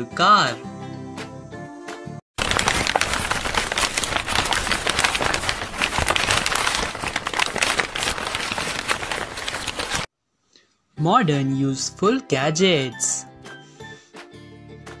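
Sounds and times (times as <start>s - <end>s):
dense crackling noise: 2.4s - 10.1s.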